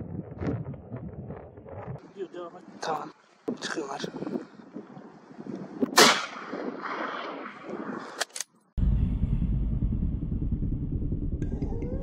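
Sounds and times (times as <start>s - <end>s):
rifle shots: 6.0s - 8.1s
steady low rumble: 8.8s - 12.0s.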